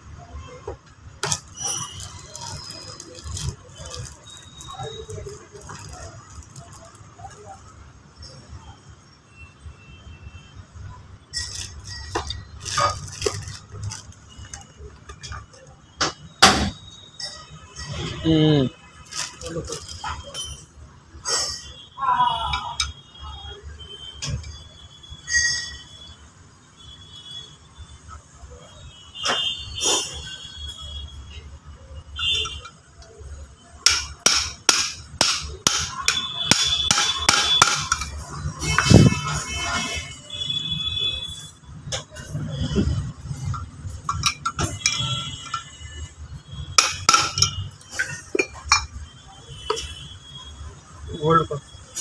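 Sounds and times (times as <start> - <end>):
small metal parts clinking: 1.2 - 7.6, 11.3 - 15.6, 19.0 - 20.7.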